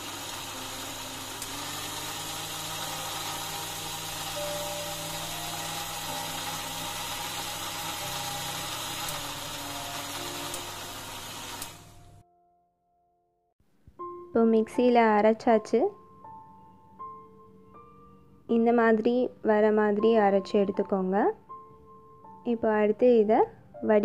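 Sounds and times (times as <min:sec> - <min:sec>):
mixer grinder motor running: 0:00.0 - 0:12.2.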